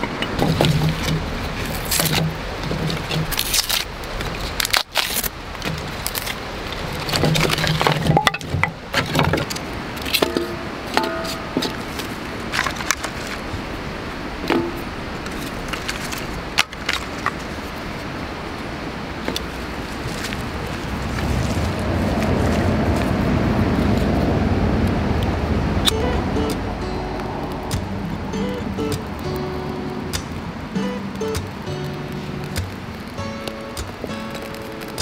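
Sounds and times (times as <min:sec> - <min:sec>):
kindling sticks cracking: 0:00.0 - 0:13.5, 0:14.4 - 0:17.7, 0:24.8 - 0:35.0
sharp knocks on steel: 0:10.2 - 0:11.9
background hiss: 0:25.5 - 0:35.0.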